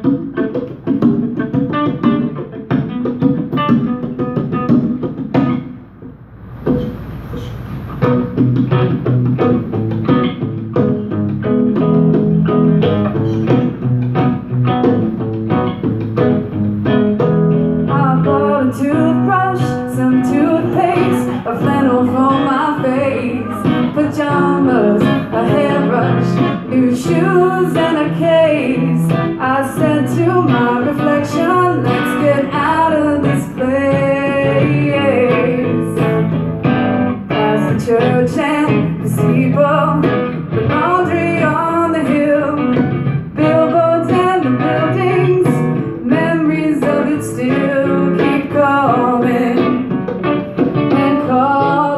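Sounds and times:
conga drums: 0:00.0 - 0:17.9, 0:46.8 - 0:51.3
acoustic guitar: 0:00.0 - 0:51.9
woman singing: 0:17.8 - 0:36.2, 0:37.3 - 0:50.0, 0:50.8 - 0:51.9.

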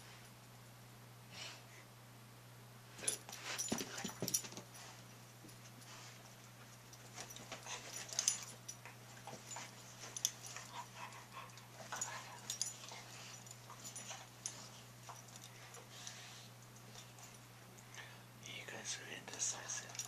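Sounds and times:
dogs sniffing and snuffling: 0:02.9 - 0:18.4, 0:19.0 - 0:20.0.

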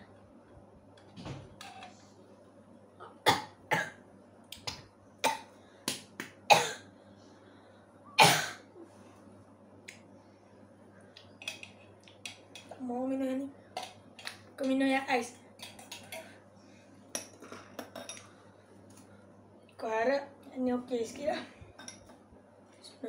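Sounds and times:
boy coughing: 0:06.5 - 0:06.8, 0:08.2 - 0:08.6.

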